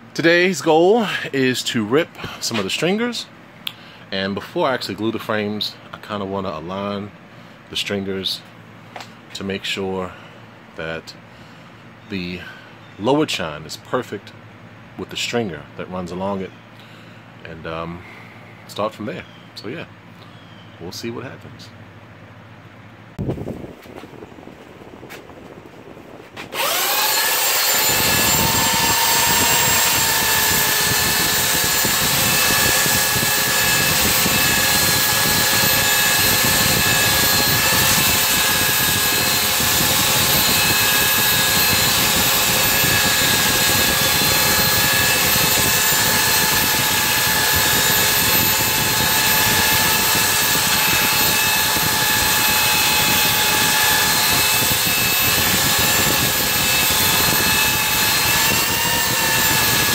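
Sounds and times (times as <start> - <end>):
power tool motor whine: 26.5 - 59.9.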